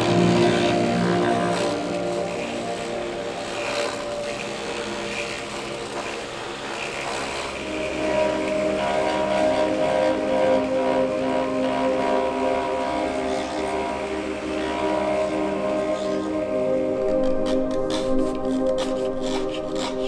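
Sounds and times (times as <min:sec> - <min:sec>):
machine humming: 0:00.0 - 0:20.0
bits cutting into wood: 0:18.7 - 0:20.0.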